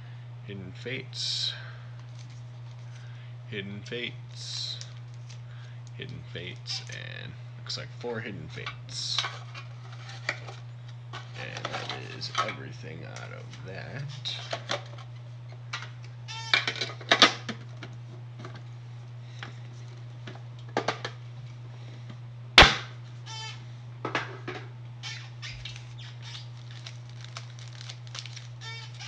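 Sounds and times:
steady low hum: 0.0 - 29.0
tin and foil packs handled: 2.0 - 3.1, 4.6 - 5.9, 25.5 - 29.0.

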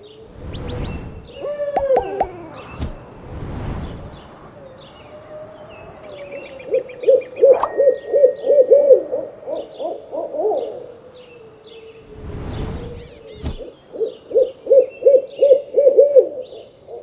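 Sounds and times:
owl hooting: 1.3 - 2.8, 6.1 - 12.0, 13.0 - 17.0
faint high chirps: 7.4 - 9.7
faint steady tone: 7.5 - 9.7
sharp ding: 7.6 - 9.2.

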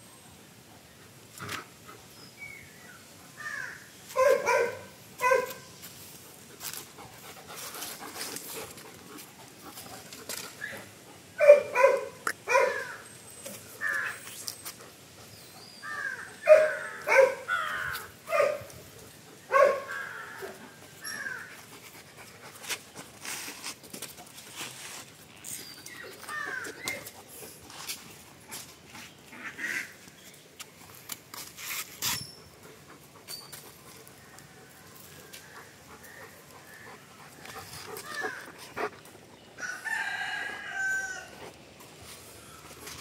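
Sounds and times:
dogs barking: 4.1 - 5.7, 11.4 - 13.0, 16.1 - 18.7, 19.5 - 20.6.

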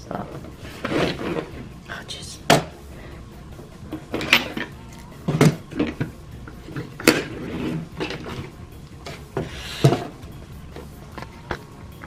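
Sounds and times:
scraping on tabletop: 0.6 - 1.7, 6.8 - 8.5.

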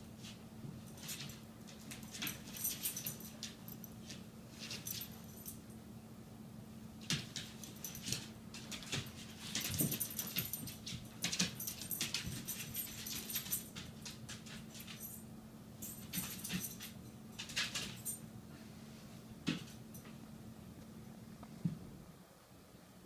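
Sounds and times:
claws and toys clicking on floor: 7.0 - 15.2.

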